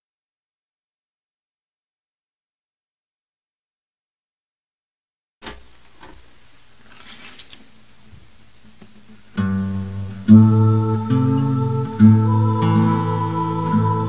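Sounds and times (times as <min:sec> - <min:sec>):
acoustic guitar notes: 0:09.1 - 0:14.0.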